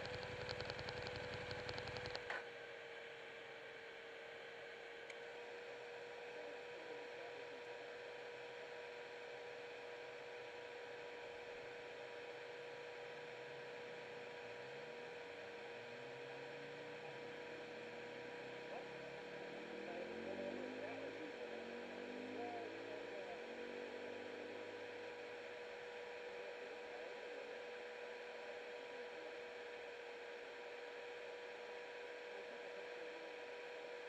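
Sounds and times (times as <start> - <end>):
electrical hum: 0.0 - 2.8, 11.6 - 29.3.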